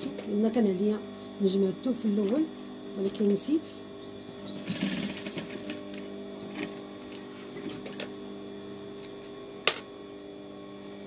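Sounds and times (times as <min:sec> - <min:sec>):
sewing machine motor humming: 0:04.0 - 0:08.2.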